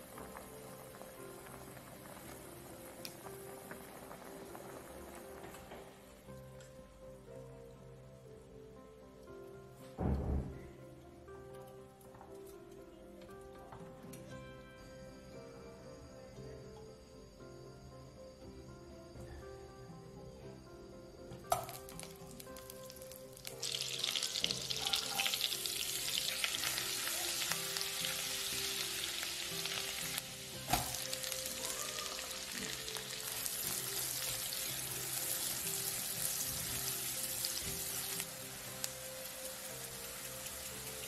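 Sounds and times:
butter sizzling in a frying pan: 0.0 - 6.1, 21.5 - 41.0
soft background music: 0.0 - 41.0.

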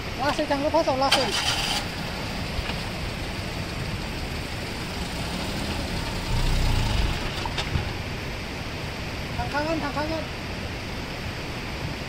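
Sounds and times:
small car engine idling: 0.2 - 9.6.

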